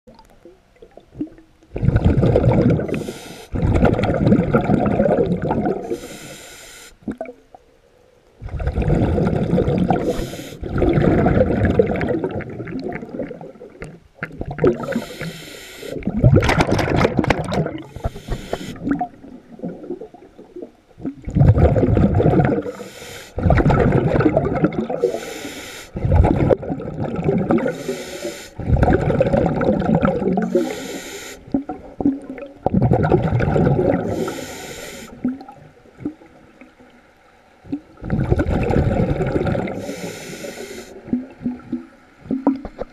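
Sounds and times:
exhaled bubbles underwater: 0.1s - 6.2s, 7.0s - 7.7s, 8.4s - 42.9s
hissing breaths: 2.9s - 3.6s, 5.9s - 7.0s, 10.0s - 10.6s, 14.8s - 16.1s, 17.8s - 19.0s, 22.7s - 23.4s, 25.0s - 26.0s, 27.7s - 28.6s, 30.4s - 31.5s, 34.0s - 35.3s, 39.8s - 41.0s.

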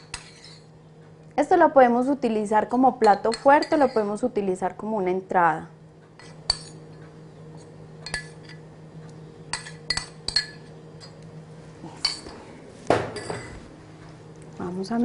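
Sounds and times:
spoon clinking against ceramic cup: 3.0s - 4.0s, 9.5s - 11.2s.

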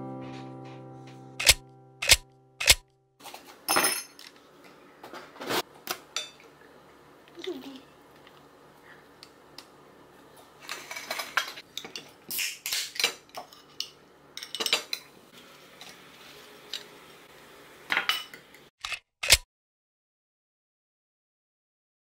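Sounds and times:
cutlery clinking on plates: 10.7s - 15.1s.

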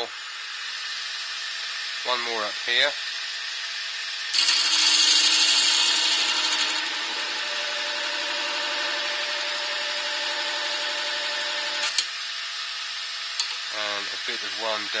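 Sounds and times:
lathe running hum: 0.0s - 15.0s
lathe tool scraping wood: 4.3s - 11.7s.

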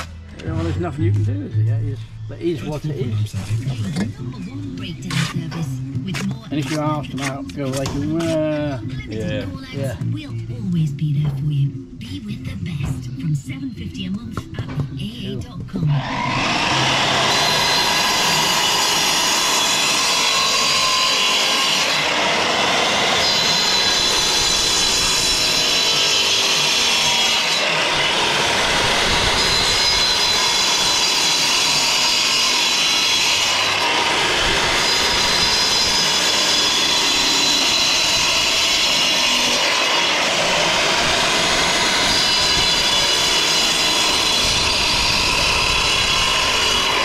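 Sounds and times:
disc cutter cutting bricks: 15.9s - 47.0s.

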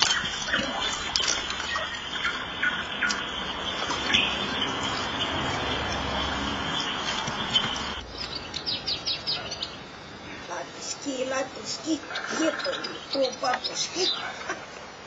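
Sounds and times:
high bird chirps: 0.0s - 9.9s, 11.3s - 14.3s
nightingale singing: 0.0s - 14.5s.

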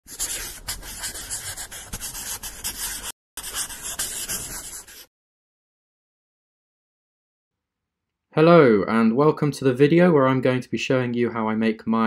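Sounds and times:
pen scratching on paper: 0.0s - 5.1s.

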